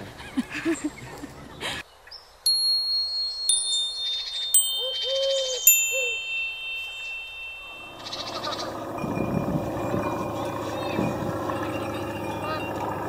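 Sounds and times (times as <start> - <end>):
metallic chime strikes: 2.5 - 10.9.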